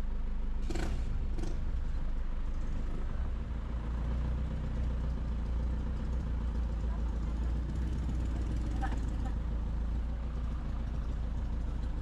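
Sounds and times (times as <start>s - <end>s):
vehicle engine rumbling from inside: 0.0s - 12.0s.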